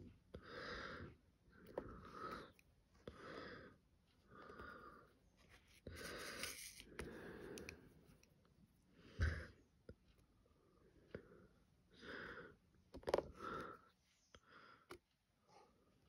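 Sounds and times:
wheezy breathing: 5.8 - 8.0.

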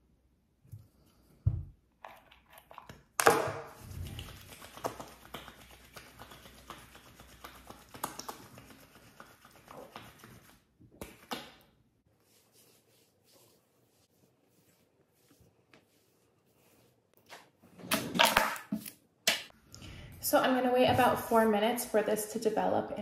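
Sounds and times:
hands rubbing wet hair: 3.8 - 11.4, 12.1 - 17.6.

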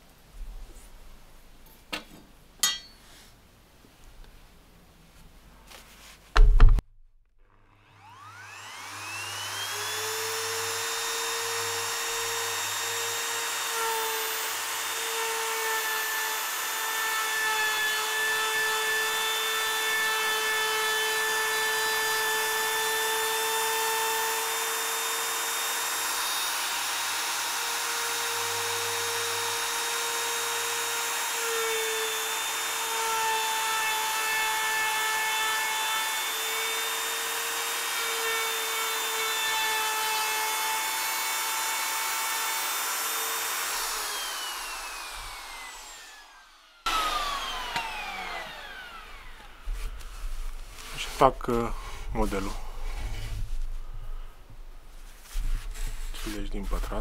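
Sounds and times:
power tool motor on wood: 7.6 - 51.3.

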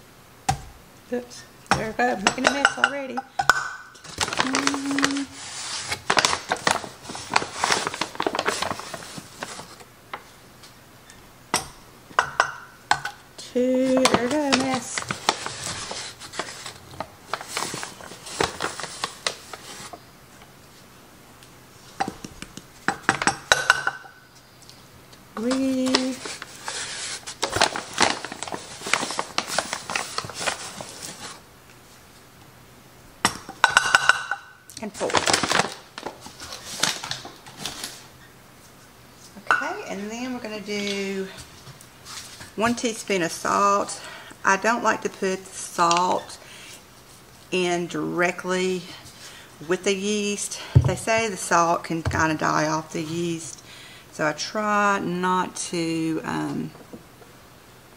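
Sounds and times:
paper bag rustling: 4.0 - 9.8, 13.7 - 20.0, 25.4 - 31.4, 35.0 - 38.1.

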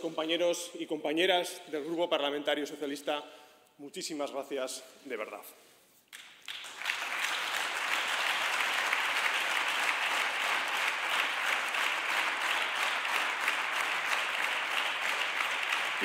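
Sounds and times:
people clapping: 6.1 - 16.0.

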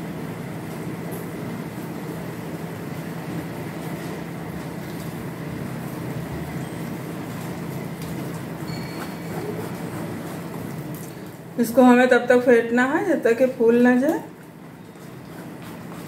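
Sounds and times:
batter squelching in steel bowl: 5.7 - 11.5, 13.9 - 16.0.

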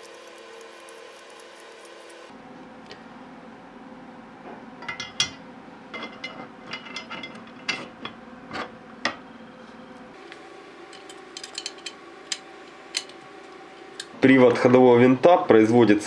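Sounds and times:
metal parts clicking on metal rail: 10.9 - 13.2.

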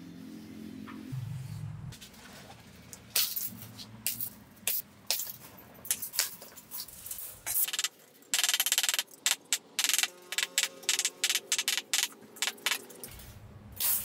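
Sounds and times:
low hum: 0.0 - 2.2
wire clinking on concrete: 3.1 - 14.0
wire cutters snipping steel wire: 4.1 - 14.0.

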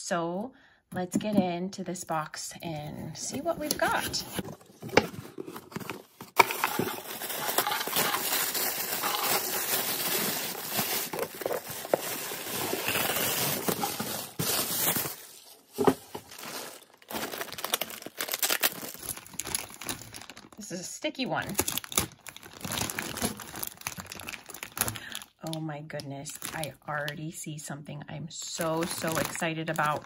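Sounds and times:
packaging crinkling and rustling: 3.4 - 20.6, 21.4 - 25.5, 26.3 - 27.1, 28.5 - 30.0.

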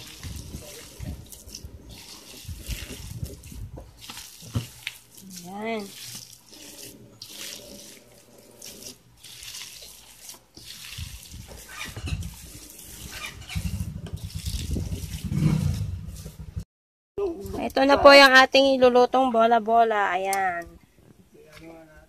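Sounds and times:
hands squelching wet mixture: 0.0 - 16.4.

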